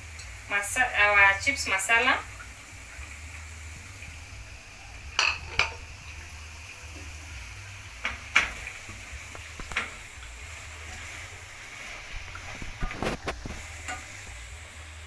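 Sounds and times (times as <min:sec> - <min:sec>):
metal utensil clinking on pot: 0:05.2 - 0:05.8.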